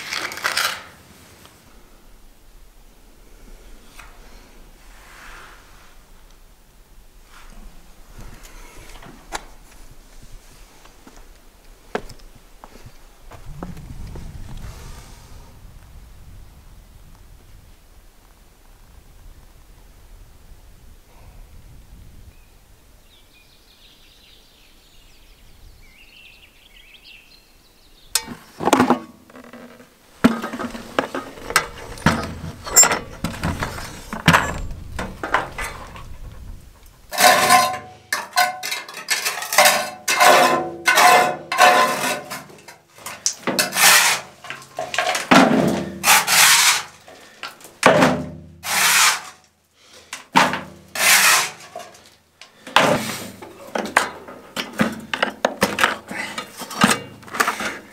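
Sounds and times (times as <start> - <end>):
knocks and clatter: 28.2 - 43.8
trowel scraping on concrete: 37.1 - 47.3, 48.6 - 49.4, 50.9 - 52.0.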